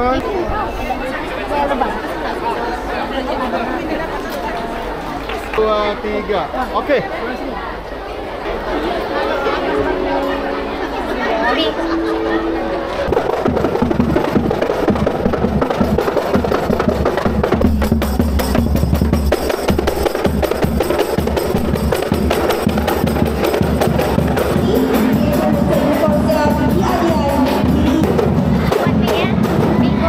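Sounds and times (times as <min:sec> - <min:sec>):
voices: 0:00.0 - 0:15.3, 0:23.0 - 0:30.0
frame drums and bass drum: 0:13.0 - 0:30.0.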